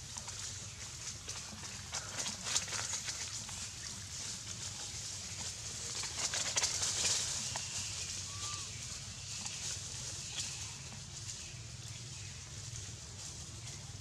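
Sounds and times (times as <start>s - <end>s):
footsteps on dry leaves: 0.0s - 14.0s
forest background hiss: 3.0s - 14.0s.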